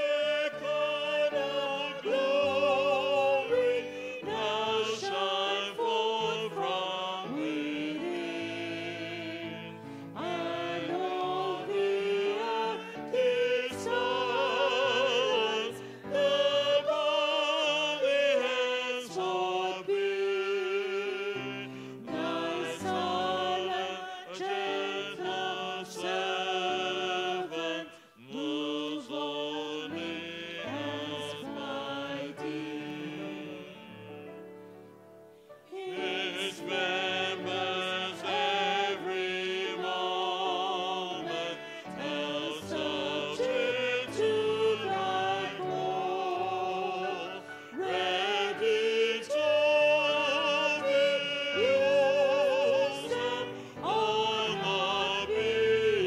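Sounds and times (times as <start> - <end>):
women singing a hymn: 0.0 - 34.2, 35.6 - 56.0.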